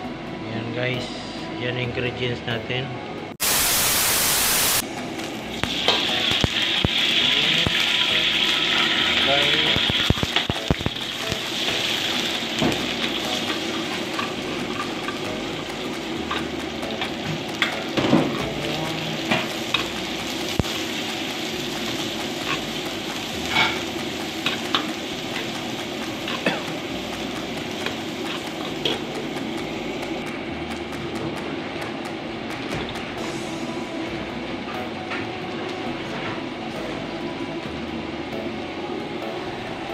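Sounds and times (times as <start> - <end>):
onions sizzling in hot oil: 3.4 - 30.7.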